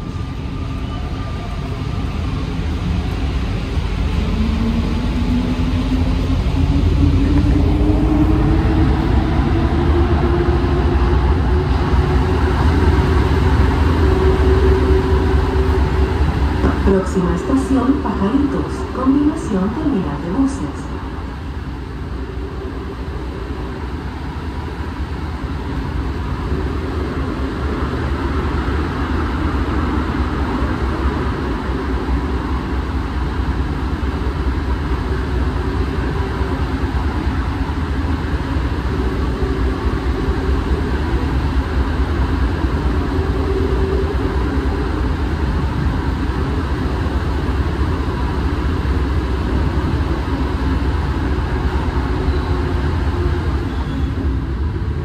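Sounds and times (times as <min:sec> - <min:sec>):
faint whining tones: 0:00.0 - 0:30.5
metro train rumble: 0:00.0 - 0:55.0.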